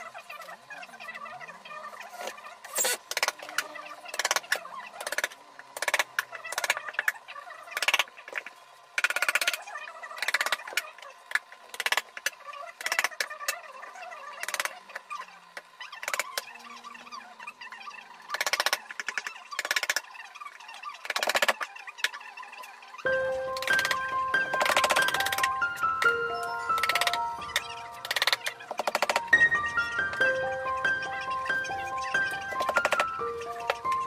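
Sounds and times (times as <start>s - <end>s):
music with chiming mallet tones: 23.1s - 34.0s.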